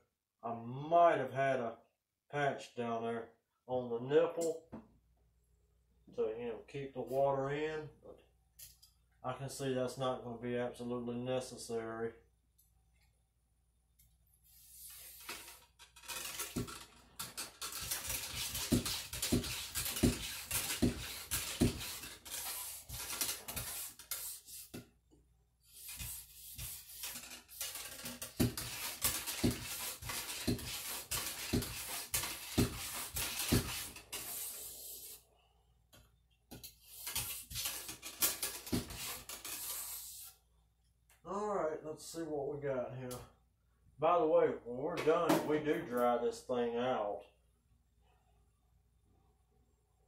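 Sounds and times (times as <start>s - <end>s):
bore brush scrubbing in barrel: 14.5s - 24.8s, 25.7s - 35.2s, 36.8s - 40.4s.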